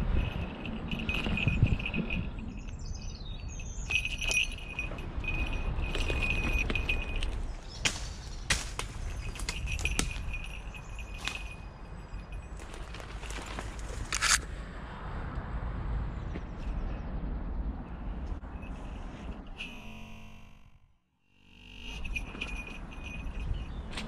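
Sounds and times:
small bell jingling: 0.0 - 7.8, 9.0 - 13.9, 18.6 - 20.6, 21.5 - 24.0.

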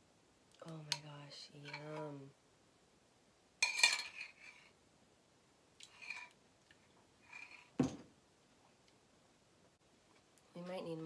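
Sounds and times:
metal spoon scraping glass cup: 3.6 - 4.7, 5.8 - 6.4, 7.2 - 7.7.

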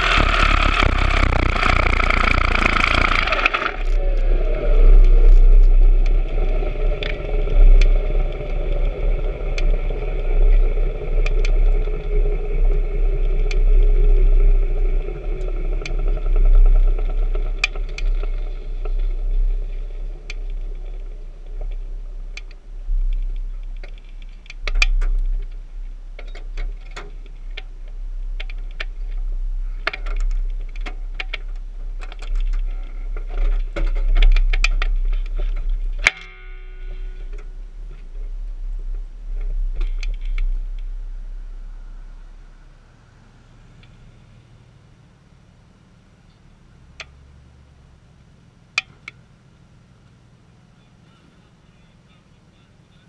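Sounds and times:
sharp clicks and rattles: 0.0 - 41.0
race car engine rumble: 0.0 - 53.0.

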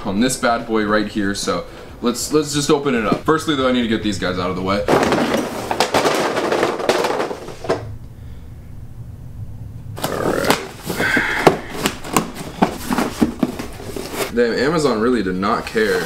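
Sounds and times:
cardboard boxes rustling and scraping: 4.9 - 7.9, 10.0 - 14.4, 15.6 - 16.0.

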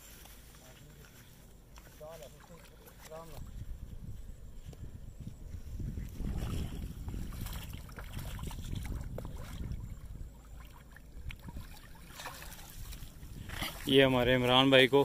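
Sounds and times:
wind noise on microphone: 3.1 - 14.8
fish thrashing in water: 6.2 - 14.0
landing net splashing in water: 6.2 - 14.2.

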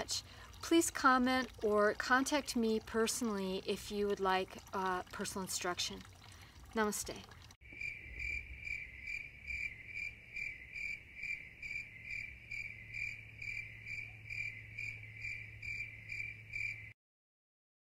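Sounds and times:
cricket chirping: 7.6 - 17.0.

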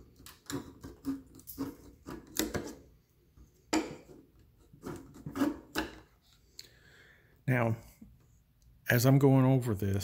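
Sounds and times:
tin snips cutting plastic: 0.2 - 2.8.

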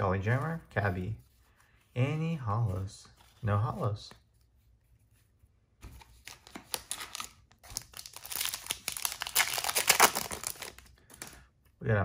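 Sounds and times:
foil wrapper crinkling and tearing: 6.4 - 11.2.

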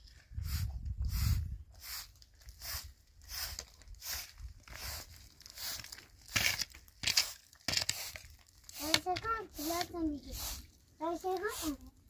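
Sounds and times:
broom sweeping concrete floor: 0.4 - 11.9.

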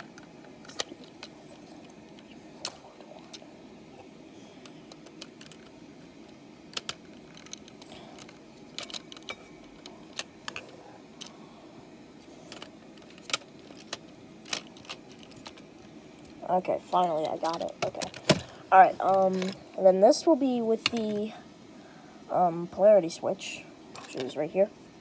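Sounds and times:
low background noise: 0.0 - 25.0
plastic bricks clicking: 4.9 - 5.7, 6.7 - 11.3.

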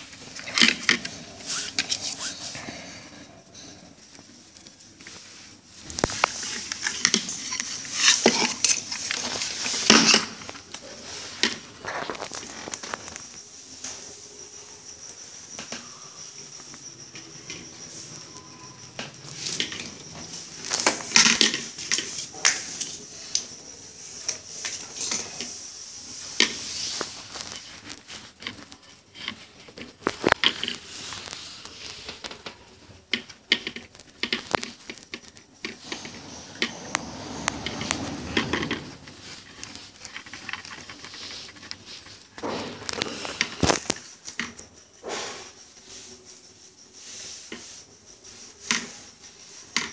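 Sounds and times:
clicks and knocks of handling parts: 26.4 - 44.7.

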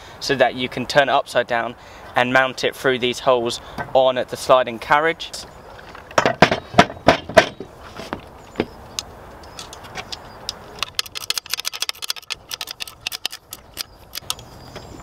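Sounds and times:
metal clunks: 6.0 - 8.8
quick metallic clicks and clinks: 9.5 - 14.5.

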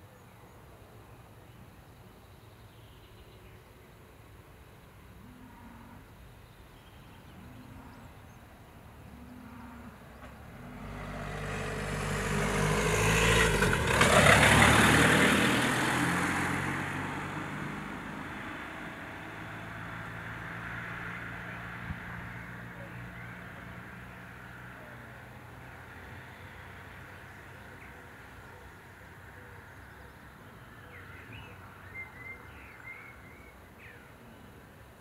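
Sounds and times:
vehicle driving past: 9.0 - 29.9.

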